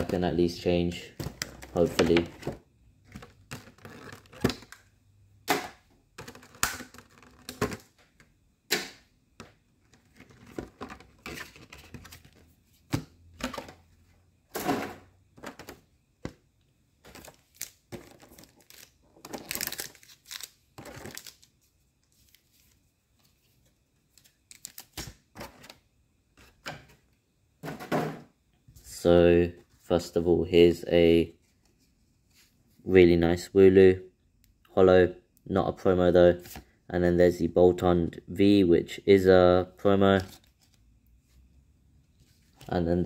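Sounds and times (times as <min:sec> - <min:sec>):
cardboard packaging rustling: 0:17.0 - 0:25.8.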